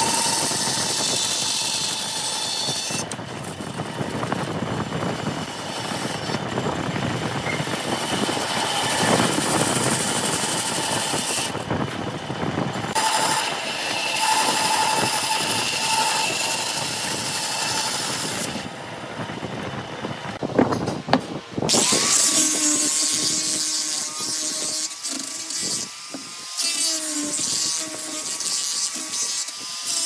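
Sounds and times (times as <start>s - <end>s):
bandsaw cutting wood: 0.0s - 18.8s, 21.7s - 30.0s
motor whine: 0.0s - 20.6s.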